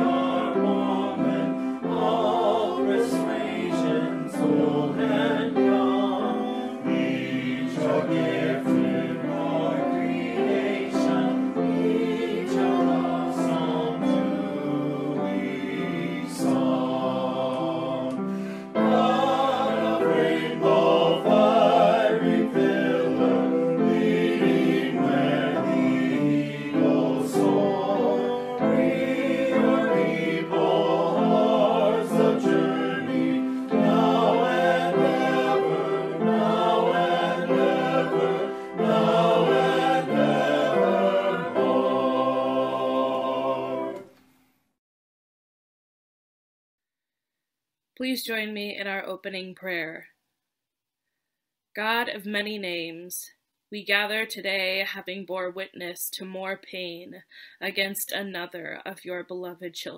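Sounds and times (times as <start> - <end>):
choir singing a hymn: 0.0 - 44.1.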